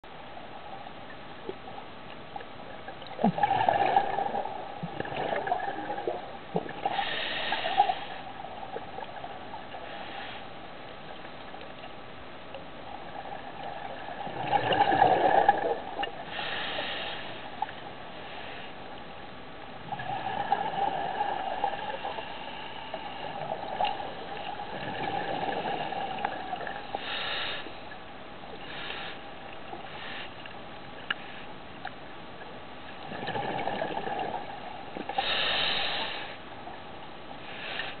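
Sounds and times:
faint steady hum: 0.0s - 38.0s
exhaled bubbles rushing: 3.0s - 6.9s, 13.6s - 16.2s, 23.2s - 26.8s, 33.0s - 34.7s
regulator inhalation hisses: 6.9s - 8.2s, 16.3s - 17.5s, 27.0s - 27.8s, 35.2s - 36.4s.

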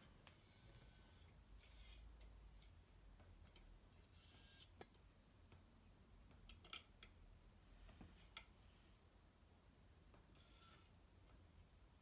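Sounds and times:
soft hiss: 7.5s - 12.0s.

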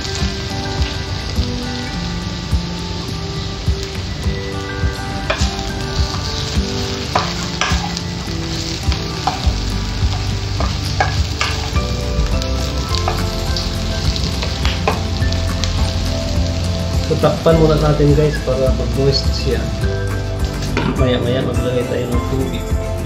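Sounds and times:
food sizzling in a wok: 0.0s - 23.0s
spatula scraping and knocking pan: 5.2s - 11.9s.

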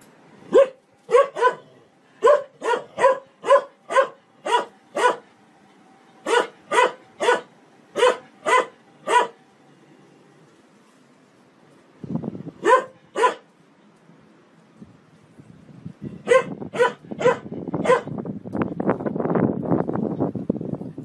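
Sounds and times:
large dog barking: 0.5s - 5.3s, 6.2s - 9.4s, 12.6s - 13.5s, 16.2s - 18.1s.

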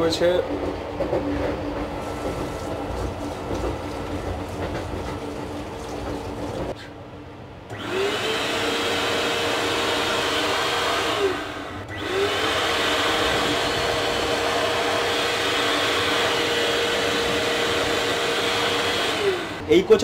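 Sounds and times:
electric hand dryer blowing: 7.7s - 19.6s.

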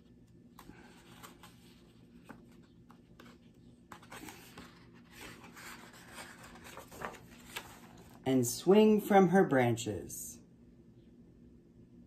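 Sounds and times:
book pages rustling: 0.2s - 8.2s.

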